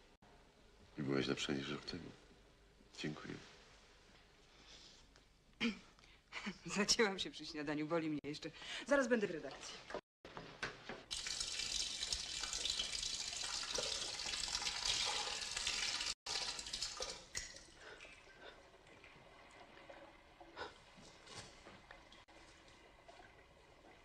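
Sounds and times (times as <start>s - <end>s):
tap water running into basin: 11.0s - 24.0s.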